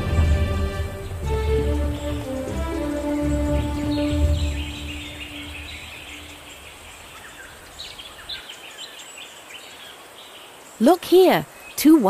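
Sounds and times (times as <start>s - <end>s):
soft background music: 0.0s - 6.6s
birds chirping: 0.0s - 12.0s.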